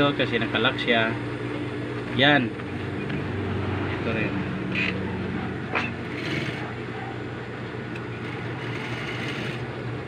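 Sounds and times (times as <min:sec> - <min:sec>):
sewing machine running: 0:06.0 - 0:06.8, 0:08.2 - 0:09.8.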